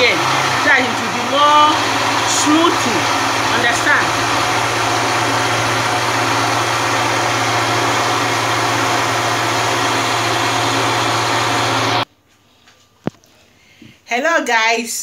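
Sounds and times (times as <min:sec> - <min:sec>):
blender motor running: 0:00.0 - 0:12.0.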